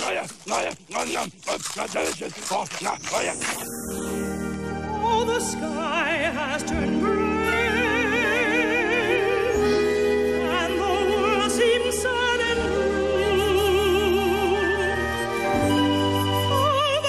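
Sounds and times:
operatic singing: 4.6s - 17.0s.

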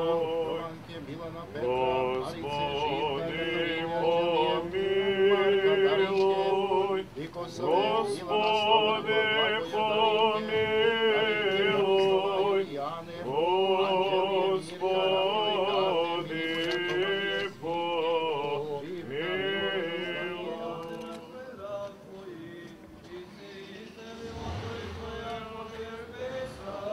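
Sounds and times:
men chanting: 0.0s - 26.9s.

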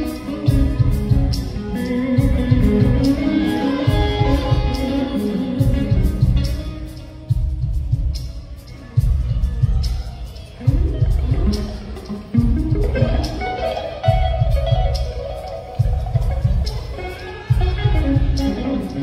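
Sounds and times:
electric lead guitar: 0.0s - 7.5s, 10.6s - 19.0s
pulsing bass drum: 2.2s - 3.2s, 9.0s - 13.4s.

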